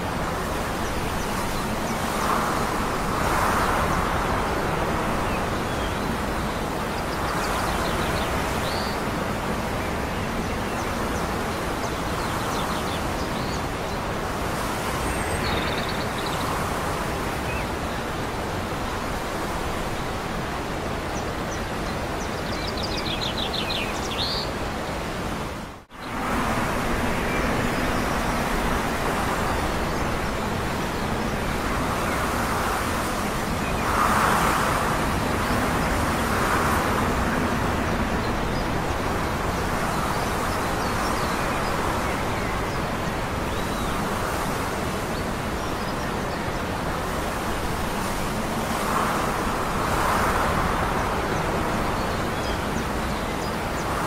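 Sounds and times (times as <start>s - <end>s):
wind: 0.0s - 54.0s
distant traffic: 25.9s - 54.0s.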